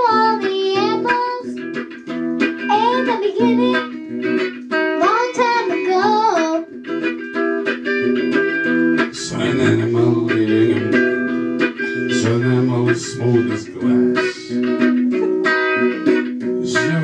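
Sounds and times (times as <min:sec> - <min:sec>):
girl singing: 0:00.0 - 0:01.6, 0:02.6 - 0:04.0, 0:04.9 - 0:06.8
electric guitar: 0:00.0 - 0:17.0.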